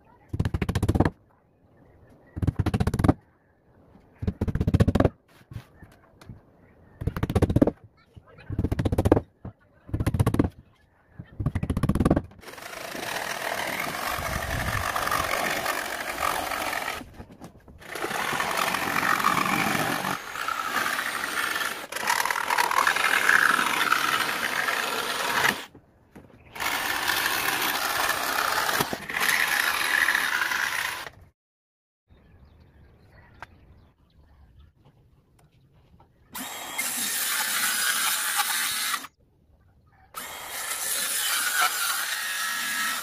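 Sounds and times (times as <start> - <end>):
jigsaw cutting plywood: 11.7 - 17.1, 17.8 - 25.7, 26.5 - 31.2, 36.4 - 39.1, 40.2 - 43.0.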